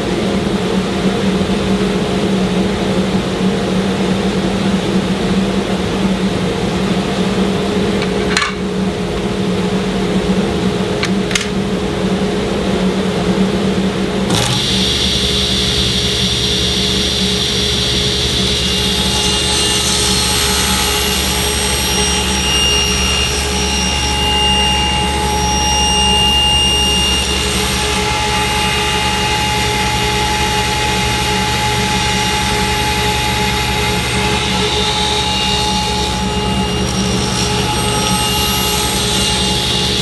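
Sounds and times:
table saw running: 0:07.2 - 0:08.9, 0:14.2 - 0:40.0
saw cutting wood: 0:14.3 - 0:40.0.

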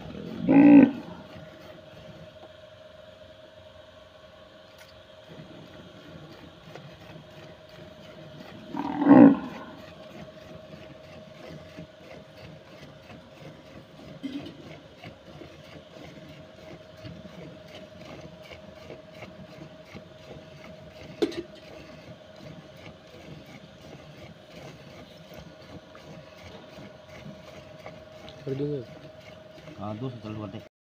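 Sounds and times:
cow mooing: 0:00.2 - 0:01.3, 0:08.7 - 0:09.8.

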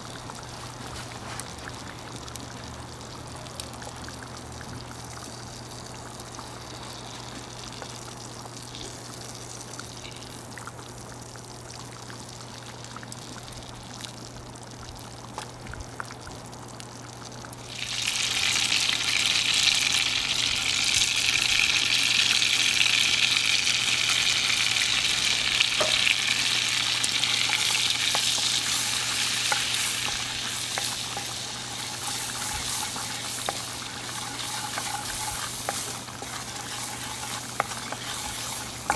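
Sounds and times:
butter sizzling in a skillet: 0:17.6 - 0:38.9
wooden spatula pushing in skillet: 0:27.2 - 0:38.9.

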